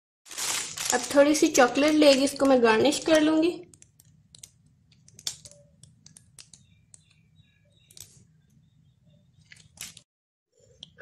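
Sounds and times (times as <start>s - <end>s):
plastic piping bag squeezed: 0.3s - 6.6s.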